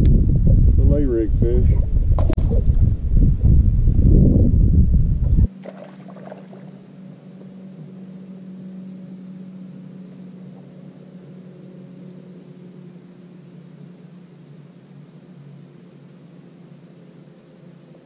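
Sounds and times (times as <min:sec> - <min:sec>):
wind rumble on microphone: 0:00.0 - 0:08.4
electric trolling motor hum: 0:02.0 - 0:18.0.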